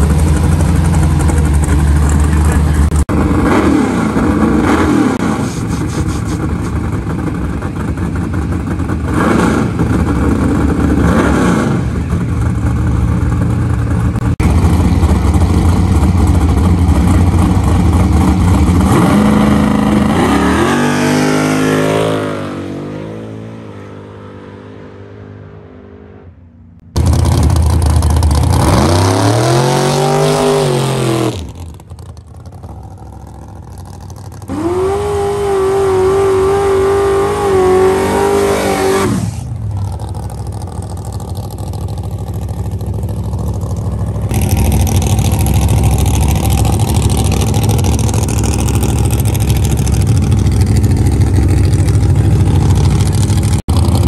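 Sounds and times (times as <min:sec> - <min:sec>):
race car engines revving: 0:00.0 - 0:54.0
race car accelerating away: 0:27.0 - 0:54.0.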